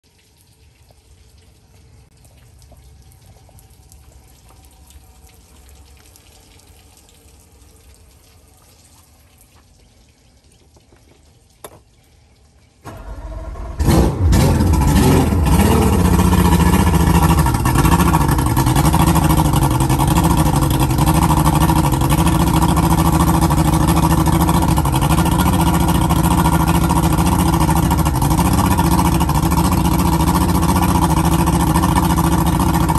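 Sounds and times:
outboard motor cranking and idling: 0:12.8 - 0:32.9.

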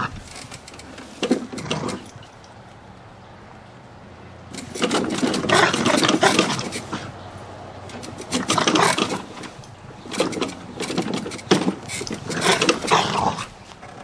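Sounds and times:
dog growling and snarling: 0:01.4 - 0:02.2, 0:04.7 - 0:07.1, 0:08.2 - 0:09.4, 0:12.2 - 0:13.5.

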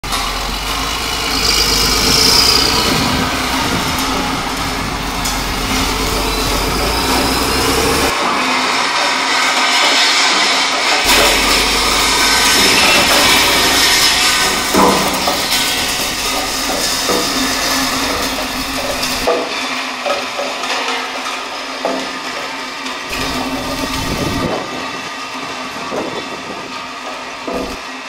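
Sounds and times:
steel roller grinding on concrete: 0:00.0 - 0:28.0
loud clunks: 0:11.1 - 0:19.5.

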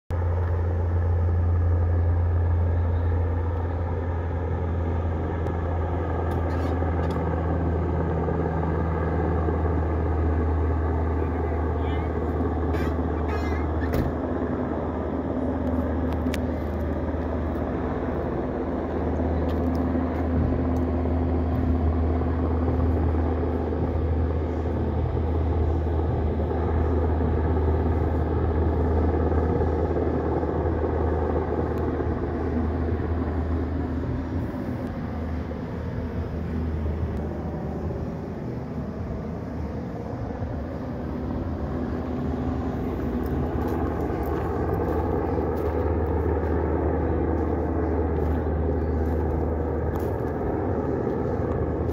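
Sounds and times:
helicopter rotor and engine drone: 0:00.1 - 0:51.9.

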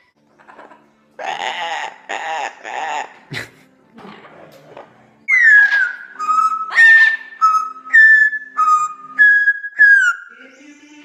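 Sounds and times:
parrot whistling a tune: 0:05.3 - 0:10.3.

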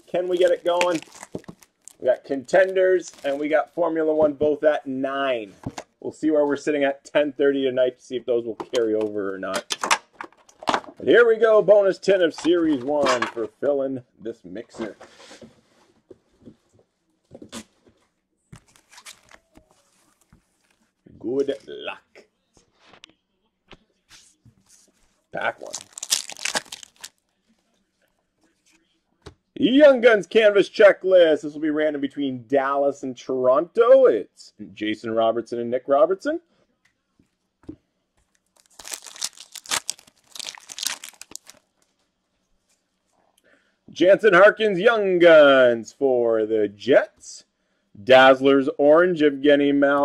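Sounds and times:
wrapper rustling: 0:00.0 - 0:03.6, 0:18.5 - 0:21.0, 0:24.9 - 0:27.3, 0:38.4 - 0:42.0.

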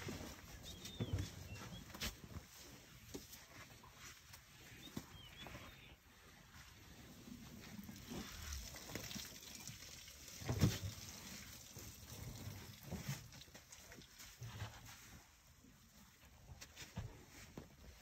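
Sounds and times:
elephants shuffling on sand: 0:00.0 - 0:08.8.

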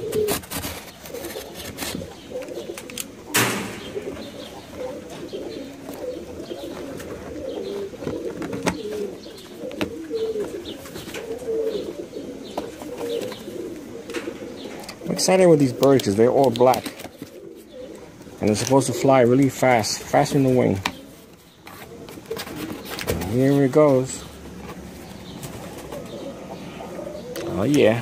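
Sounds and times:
pigeons cooing: 0:00.0 - 0:28.0.

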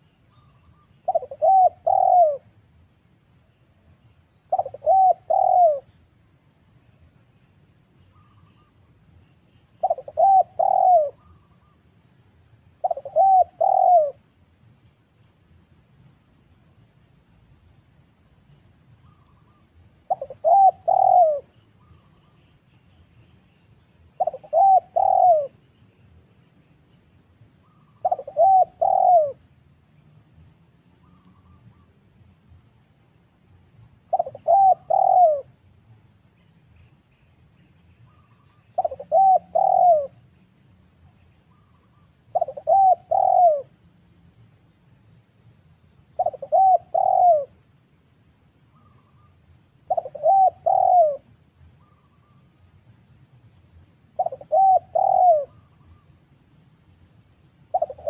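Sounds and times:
dove cooing: 0:00.4 - 0:02.5, 0:04.5 - 0:06.0, 0:09.8 - 0:11.8, 0:12.8 - 0:14.2, 0:19.0 - 0:22.4, 0:24.2 - 0:25.6, 0:27.7 - 0:29.4, 0:34.1 - 0:35.5, 0:38.1 - 0:40.2, 0:41.6 - 0:43.8, 0:46.2 - 0:47.6, 0:49.9 - 0:52.4, 0:54.2 - 0:56.0, 0:57.7 - 0:58.0.

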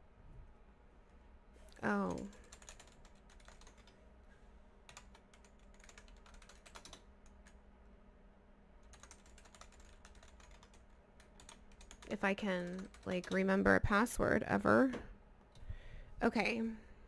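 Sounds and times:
low room hum: 0:00.0 - 0:17.0
typing on computer keyboard: 0:02.0 - 0:04.0, 0:04.9 - 0:07.6, 0:08.8 - 0:13.5.

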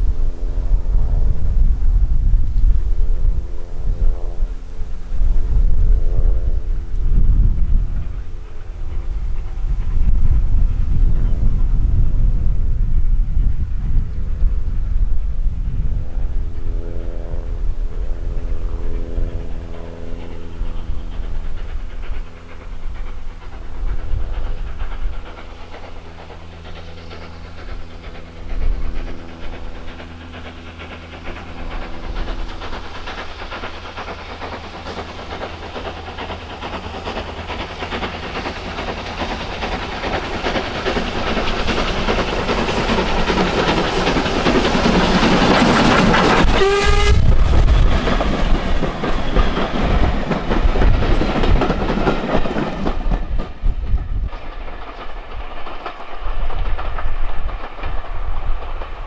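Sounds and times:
steam train running: 0:00.0 - 0:59.0
carriages clattering over rail joints: 0:20.2 - 0:59.0.

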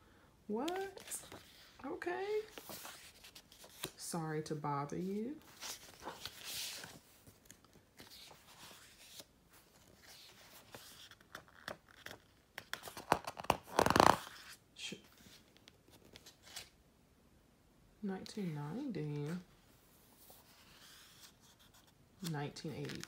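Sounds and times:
paper pages rustling: 0:00.7 - 0:04.0, 0:05.1 - 0:16.8, 0:20.2 - 0:23.0.

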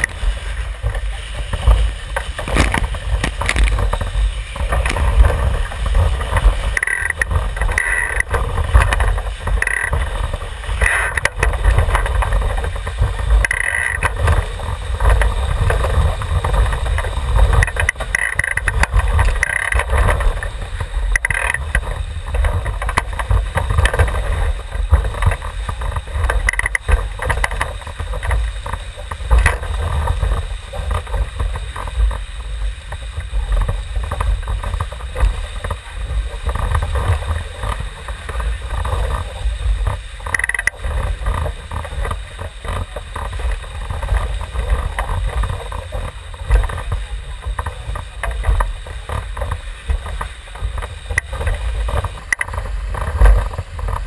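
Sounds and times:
water rushing along hull: 0:00.0 - 0:54.0
wind buffeting microphone: 0:00.0 - 0:54.0.

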